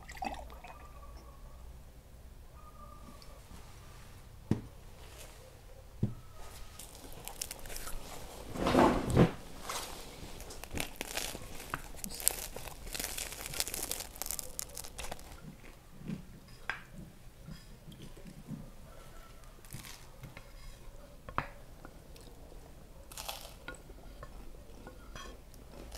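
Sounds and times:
bread crust crackling as torn: 6.7 - 8.3, 9.7 - 15.7, 19.6 - 20.1, 23.1 - 23.7.

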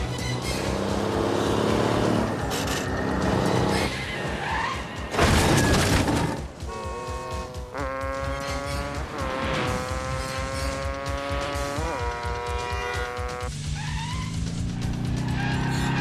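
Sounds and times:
truck diesel engine revving: 0.0 - 3.8
film score music: 0.0 - 16.0
vehicle crash: 2.5 - 6.6
dirt bike engine: 6.5 - 16.0.

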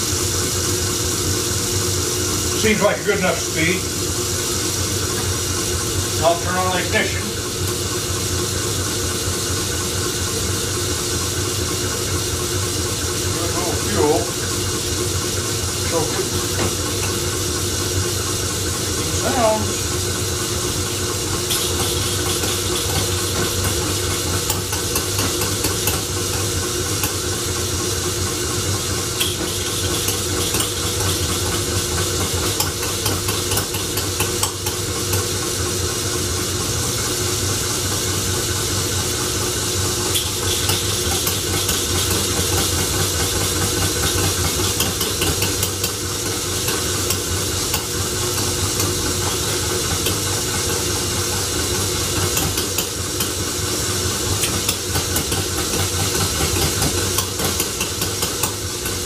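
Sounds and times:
engine humming and hissing: 0.0 - 59.0.

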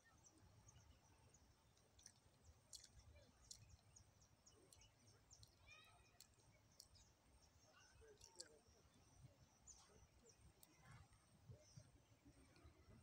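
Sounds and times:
faint clicks: 1.7 - 7.1, 8.0 - 8.7.

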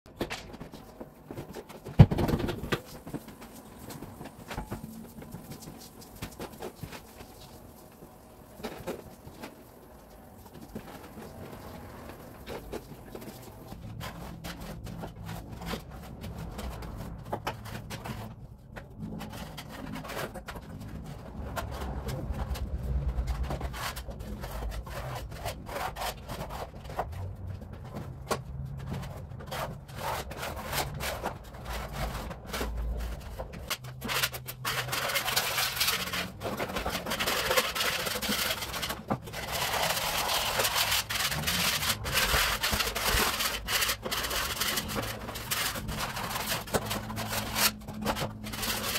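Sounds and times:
wallpaper tearing off a wall: 28.6 - 48.9.

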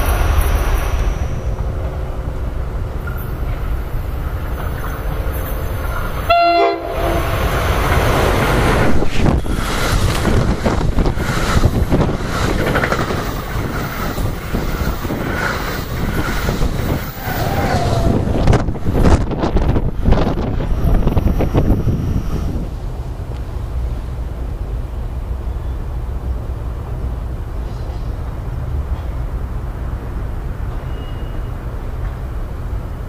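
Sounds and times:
train passing at speed: 0.0 - 33.0
train horn: 6.2 - 7.5
wheels clattering over rails: 7.3 - 21.6.

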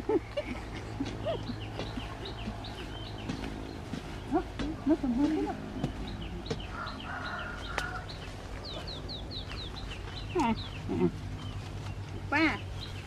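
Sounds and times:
birds chirping: 0.0 - 13.0
lower falling bird calls: 5.9 - 12.0.

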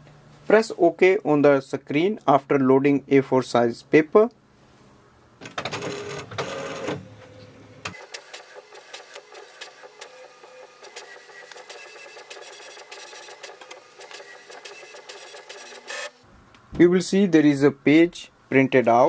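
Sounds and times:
inkjet printer whirring and clicking: 5.6 - 7.0, 7.9 - 16.2.

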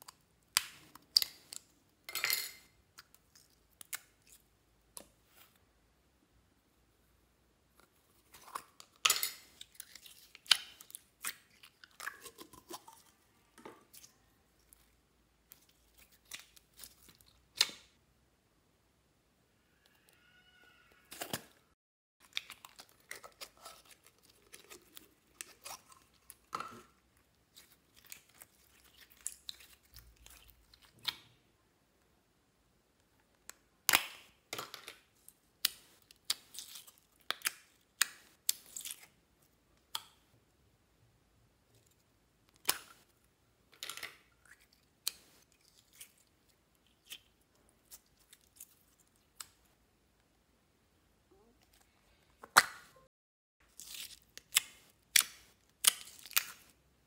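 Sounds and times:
slime crackling and squishing: 22.2 - 31.2, 53.6 - 56.8.

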